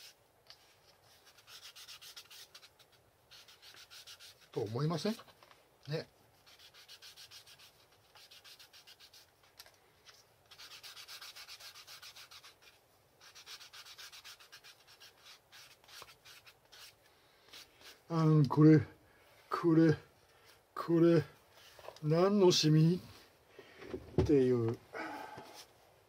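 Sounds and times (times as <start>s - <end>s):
hand rubbing strokes: 0.0s - 5.2s, 6.3s - 18.1s.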